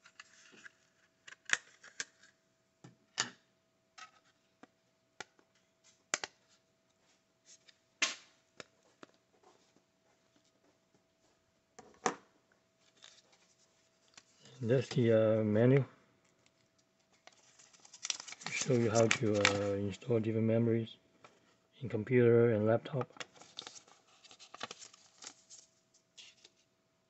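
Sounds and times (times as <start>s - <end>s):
plastic packaging crinkling: 17.1s - 20.0s, 23.1s - 26.5s.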